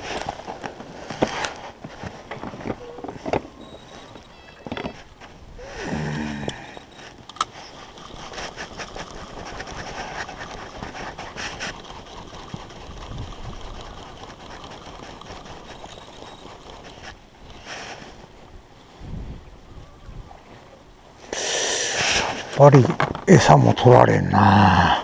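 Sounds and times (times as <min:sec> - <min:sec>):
fishing tackle clicking and scraping: 0:00.0 - 0:18.9
wind on microphone: 0:07.9 - 0:20.8
low hum-like voice: 0:24.2 - 0:25.0.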